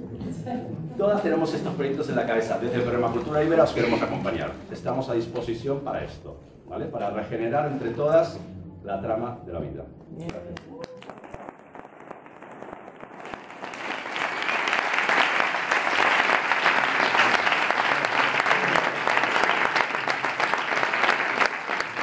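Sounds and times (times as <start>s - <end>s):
audience applauding: 10.2s - 22.0s.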